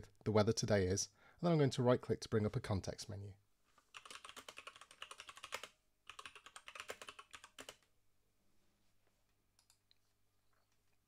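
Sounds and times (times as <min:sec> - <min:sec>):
keyboard typing: 0:03.9 - 0:07.9.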